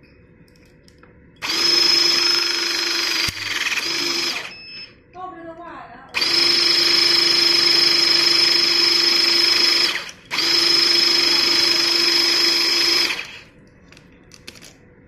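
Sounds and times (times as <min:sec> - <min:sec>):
crimping tool motor whining: 0:01.4 - 0:04.6, 0:06.2 - 0:13.5.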